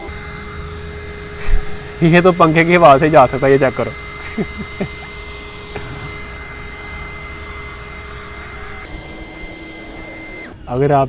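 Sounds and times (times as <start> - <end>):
mini vacuum cleaner motor whining: 0.0 - 11.0.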